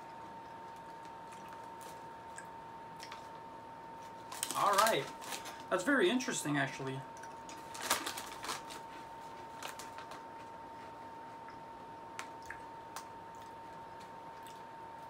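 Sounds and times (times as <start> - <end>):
potato chips crunching: 4.2 - 5.9, 7.2 - 10.2.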